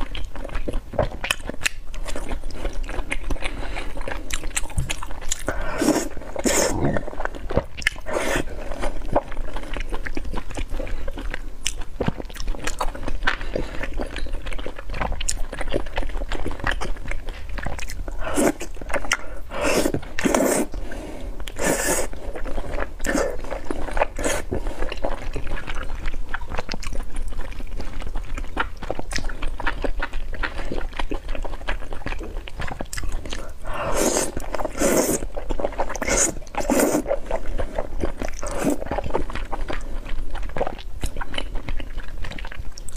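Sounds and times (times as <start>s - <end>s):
chewing with wet mouth clicks: 0.0s - 42.9s
slurping noodles: 5.4s - 9.3s, 18.2s - 25.2s, 33.2s - 39.9s.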